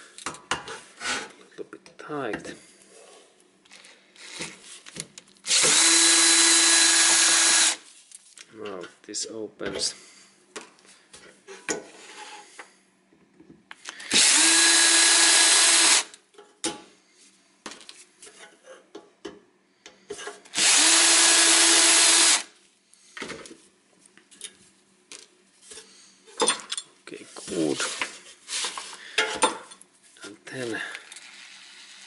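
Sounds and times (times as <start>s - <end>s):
power screwdriver running: 5.5s - 7.8s, 14.1s - 16.1s, 20.6s - 22.5s.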